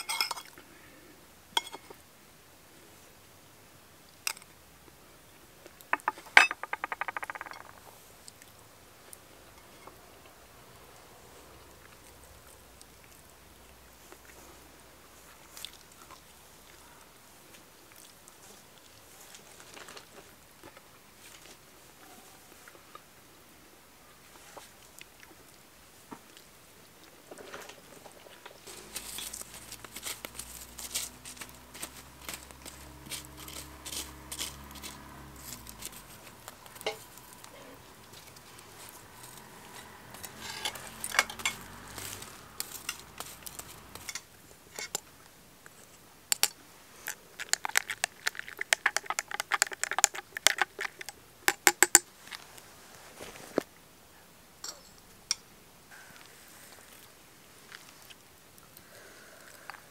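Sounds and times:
coffee pot crackling and popping: 0.0s - 0.6s, 1.6s - 2.0s, 5.6s - 8.4s, 27.3s - 52.4s.

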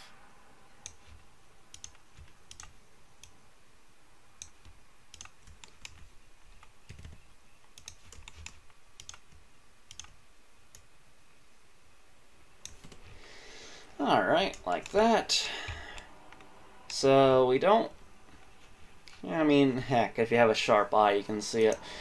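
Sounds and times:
keyboard keys clicking: 0.8s - 3.3s, 4.4s - 10.9s
computer mouse clicking: 0.8s - 3.4s, 4.4s - 10.9s, 12.6s - 13.1s, 14.5s - 15.0s, 15.9s - 17.0s.

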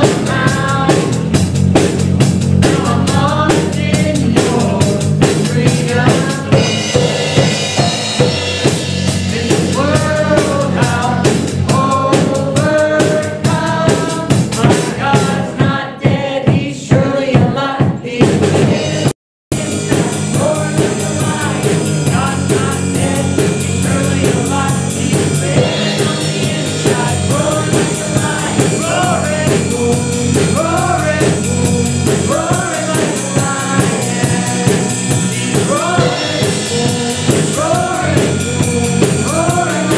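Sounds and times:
woman singing: 0.0s - 1.2s
man singing: 0.0s - 1.4s, 2.6s - 7.1s, 8.6s - 39.9s
worship band playing: 0.0s - 39.9s.

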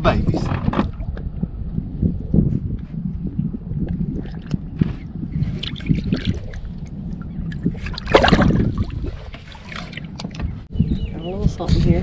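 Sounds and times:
wind rumble on microphone: 0.0s - 12.0s
water splashing against boat: 2.4s - 10.7s.

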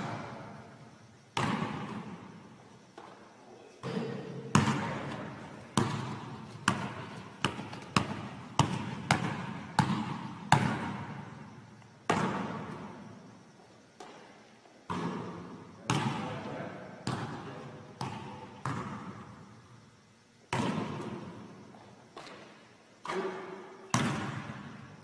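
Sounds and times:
basketball bouncing on gym floor: 1.4s - 2.3s, 3.8s - 11.5s, 12.1s - 13.0s, 14.0s - 14.3s, 14.9s - 16.4s, 17.0s - 19.4s, 20.5s - 21.4s, 22.2s - 24.8s.

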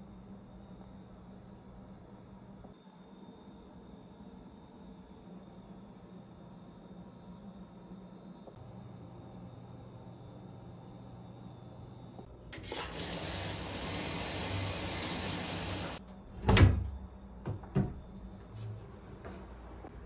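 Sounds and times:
shower head spraying water: 12.6s - 16.0s.

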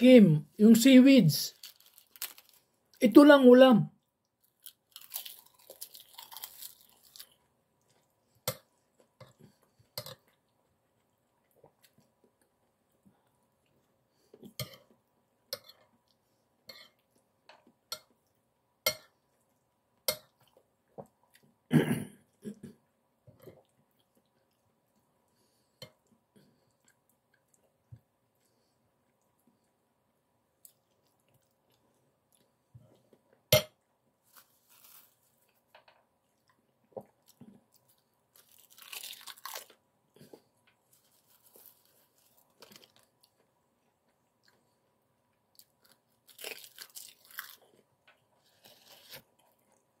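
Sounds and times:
mouth chewing crisp food: 4.0s - 12.5s, 36.4s - 50.0s.

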